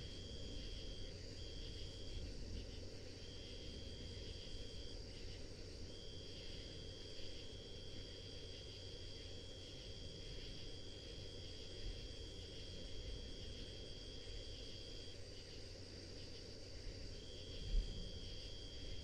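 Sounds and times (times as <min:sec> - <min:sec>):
higher continuous insect trill: 0:00.0 - 0:19.0.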